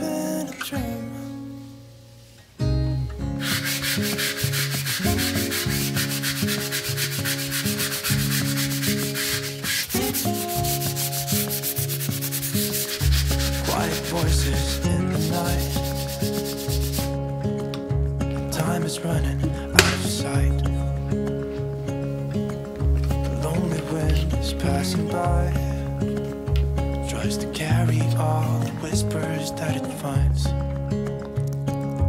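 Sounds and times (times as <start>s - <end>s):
sanding sponge rubbing wall: 3.4s - 17.2s.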